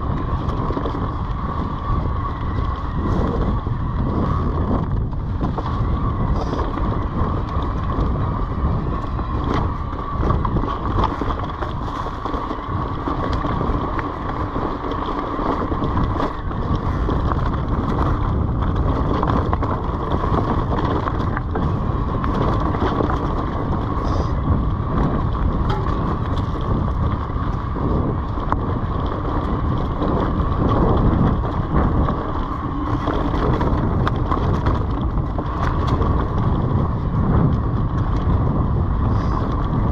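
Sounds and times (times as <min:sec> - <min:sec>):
steady high whine: 0:00.0 - 0:28.9
bike clicks and rattles: 0:00.0 - 0:39.9
bike tyres rumbling on dirt: 0:00.0 - 0:39.9
wind on microphone: 0:00.0 - 0:39.9.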